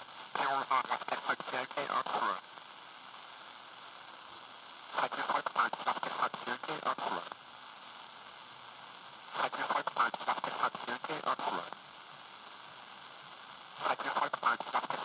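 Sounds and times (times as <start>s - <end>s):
radio static hiss: 0.0s - 15.0s
voice over radio speaker: 0.4s - 2.4s, 5.0s - 7.4s, 9.4s - 11.8s, 13.8s - 15.0s.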